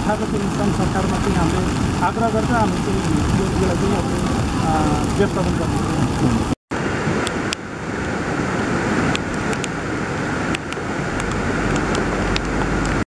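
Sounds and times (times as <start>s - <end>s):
flooding river roaring: 0.0s - 13.0s.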